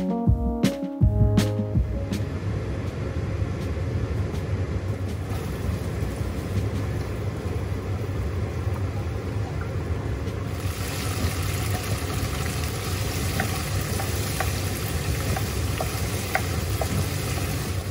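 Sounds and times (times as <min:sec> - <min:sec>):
steady low rumble: 0:00.4 - 0:17.9
spice paste frying in oil: 0:10.5 - 0:17.9
spoon tapping pan: 0:13.2 - 0:17.6.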